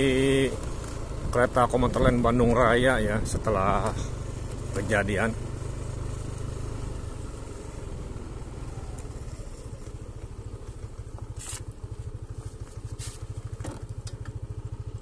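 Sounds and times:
small engine running: 0.0s - 15.0s
brief scrapes or rustles: 11.4s - 11.7s, 12.8s - 13.3s.

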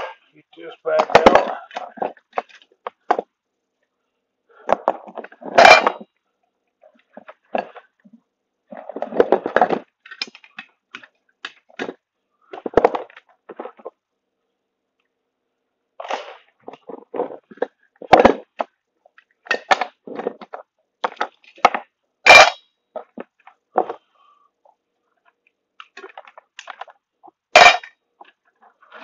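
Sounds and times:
small parts clicking and clattering: 0.9s - 3.3s, 8.7s - 14.0s, 16.0s - 24.1s, 25.2s - 29.0s.

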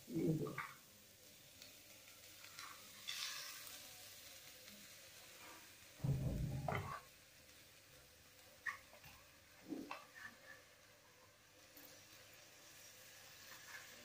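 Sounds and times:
soft scraping hiss: 0.3s - 14.0s
dull low thump: 6.0s - 6.9s.

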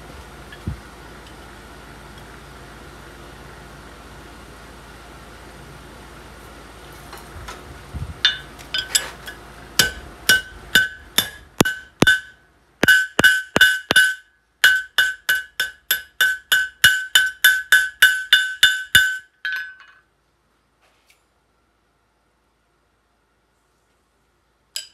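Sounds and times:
hammer ringing on anvil: 8.3s - 9.0s, 9.8s - 20.0s.

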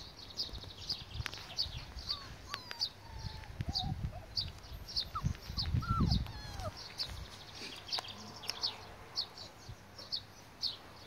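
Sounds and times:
small bird chirping: 0.0s - 11.0s
puppies whimpering: 1.8s - 7.4s.

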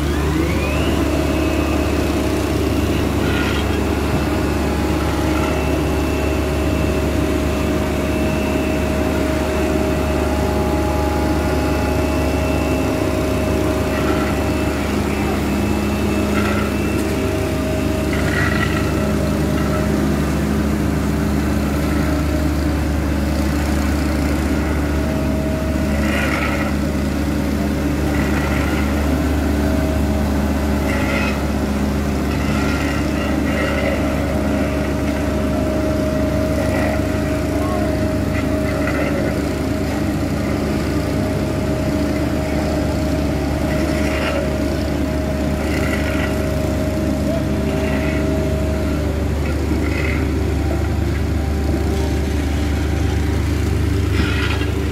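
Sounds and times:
diesel engine running: 0.0s - 54.9s
steady higher whine: 0.0s - 54.9s.

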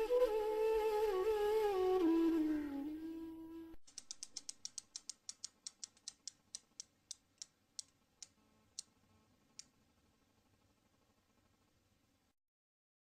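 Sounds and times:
spinning wheel ticking: 3.9s - 8.9s.

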